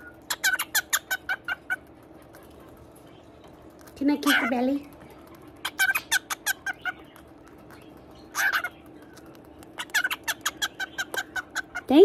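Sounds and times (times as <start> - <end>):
cockatiel squawk: 0.0 - 1.9, 4.2 - 4.6, 5.6 - 7.2, 8.3 - 8.9, 9.8 - 12.0.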